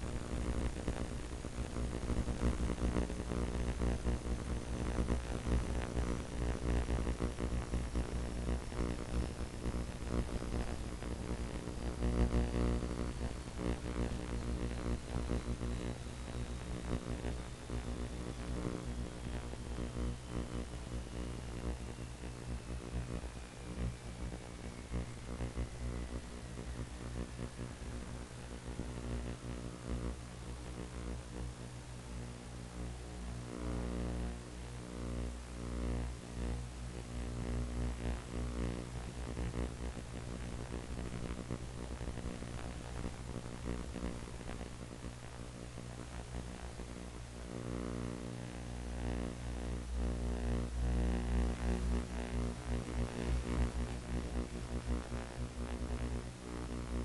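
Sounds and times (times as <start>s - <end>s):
faint thin whine: 0.0s - 57.0s
static hiss: 0.0s - 57.0s
electric motor and propeller droning: 8.0s - 33.5s.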